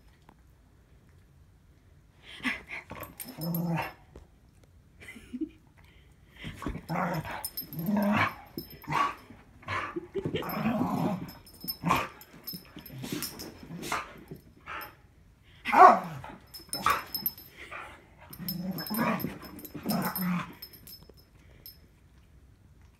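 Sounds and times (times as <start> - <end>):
dogs growling and barking: 2.9 - 4.0, 6.8 - 14.9, 15.7 - 17.5, 18.3 - 21.0.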